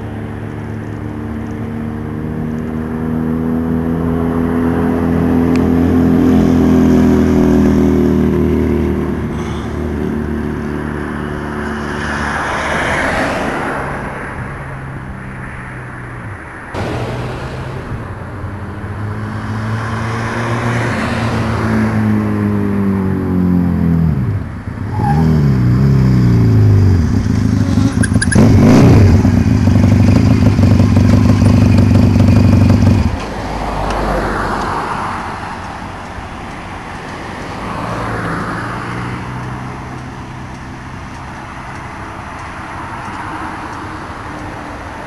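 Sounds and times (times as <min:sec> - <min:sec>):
road traffic noise: 0:00.0 - 0:45.0
loud motorcycle revving: 0:16.8 - 0:20.7, 0:25.0 - 0:33.2.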